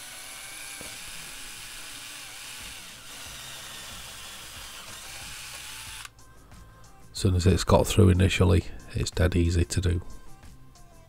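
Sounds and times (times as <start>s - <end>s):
power driver drilling metal: 0.0s - 6.1s.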